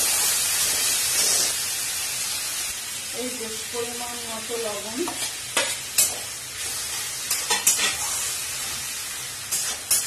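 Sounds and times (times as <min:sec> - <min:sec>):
food sizzling in a wok: 0:00.0 - 0:10.0
spatula scraping a pan: 0:05.1 - 0:08.8, 0:09.5 - 0:10.0.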